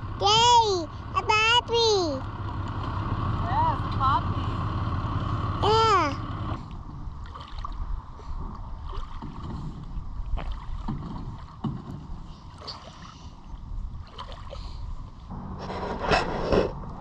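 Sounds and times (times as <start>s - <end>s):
wind rumbling on microphone: 6.6s - 17.0s.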